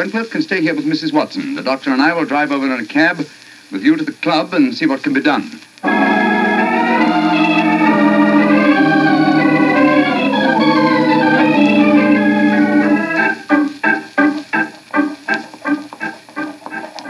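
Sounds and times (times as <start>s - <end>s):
organ chords: 5.8s - 17.0s.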